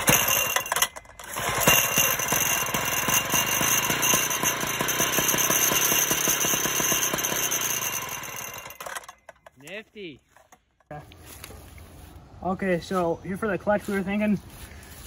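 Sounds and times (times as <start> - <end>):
two-stroke mower engine running: 0.0 - 10.7.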